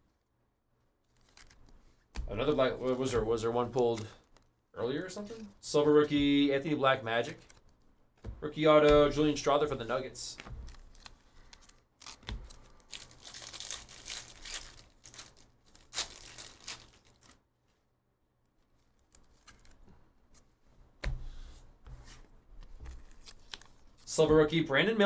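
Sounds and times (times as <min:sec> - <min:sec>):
trading cards rustling and sliding: 0:01.1 - 0:04.4, 0:09.2 - 0:17.4, 0:18.8 - 0:20.6, 0:21.2 - 0:24.3.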